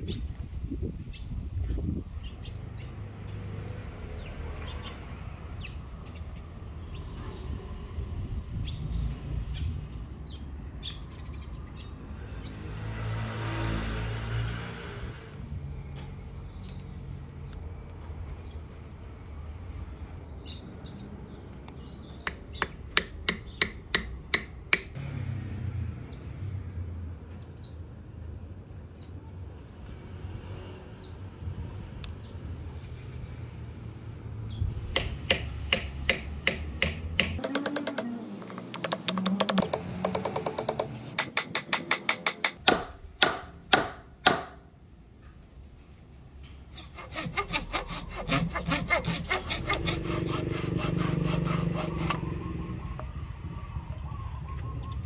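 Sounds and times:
small birds chirping: 8.6s - 12.8s, 19.8s - 24.1s
hammer tapping wooden wedges: 35.0s - 44.6s.

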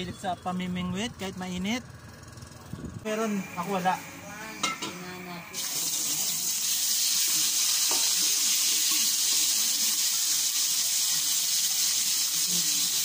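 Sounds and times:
fish deep-frying in oil: 5.5s - 13.0s.

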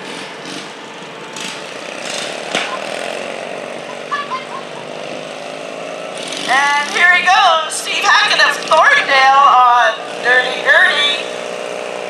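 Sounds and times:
garden tractor engine under load: 0.0s - 12.0s.

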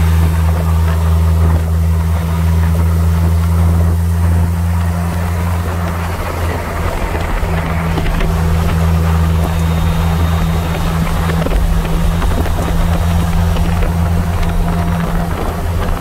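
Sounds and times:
engine and road drone: 0.0s - 16.0s.

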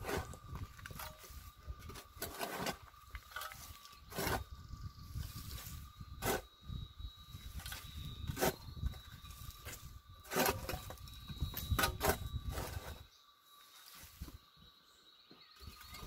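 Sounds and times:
hoe chopping stony earth: 0.0s - 4.5s, 6.2s - 6.5s, 7.6s - 8.7s, 9.6s - 12.9s
cicada drone: 0.0s - 16.0s.

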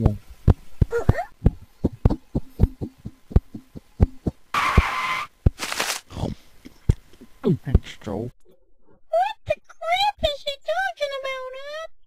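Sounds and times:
quick run of low thuds: 0.1s - 6.1s.

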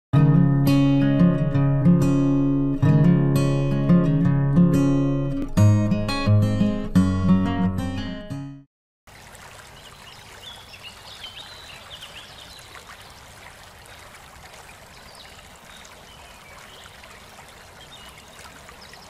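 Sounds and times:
stream trickling: 9.1s - 19.0s
small birds chirping: 9.7s - 19.0s.

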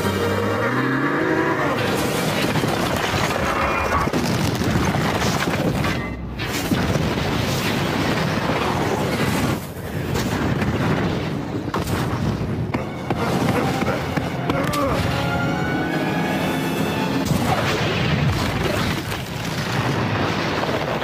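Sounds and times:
orchestral score: 0.0s - 3.6s, 12.7s - 18.0s
fire roaring: 0.0s - 21.0s
explosions booming and rumbling: 2.0s - 14.3s, 17.2s - 21.0s.

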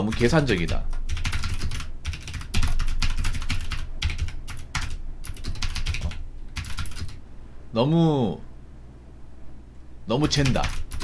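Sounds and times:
computer keyboard typing: 0.0s - 7.2s, 10.2s - 11.0s.

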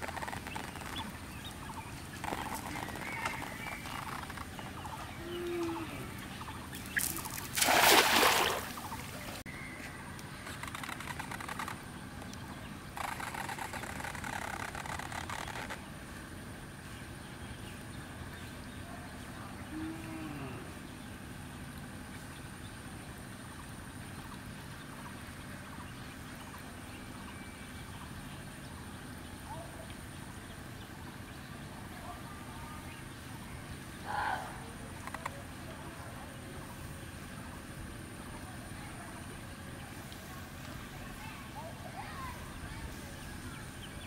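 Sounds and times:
faint scattered ticks: 0.0s - 7.5s, 10.2s - 15.9s, 34.9s - 35.8s
steady low hum: 0.0s - 44.0s
cast net splashing on water: 6.7s - 9.4s.

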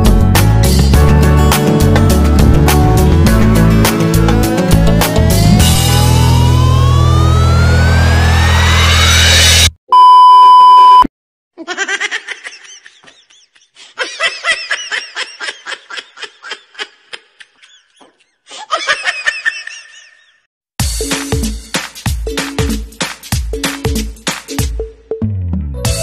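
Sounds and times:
music with rising sweep: 0.2s - 9.7s
loud steady beep tone: 9.9s - 11.1s
high laughter sound effect: 11.6s - 20.4s.

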